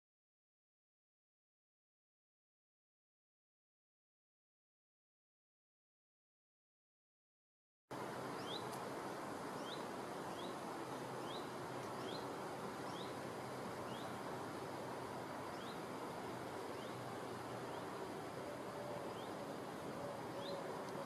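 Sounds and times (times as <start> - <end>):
open-air ambience hiss: 7.9 - 21.0
bird chirping: 8.3 - 8.8, 9.5 - 13.2, 13.8 - 14.2, 15.4 - 15.9, 16.6 - 21.0.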